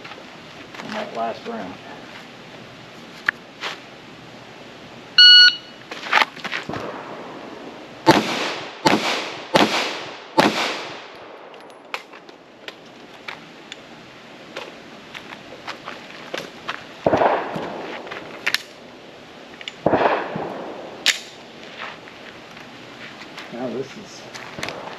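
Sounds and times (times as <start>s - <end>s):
shot timer beep: 5.2s - 5.8s
pistol shots echoing: 8.1s - 11.1s, 19.8s - 21.3s.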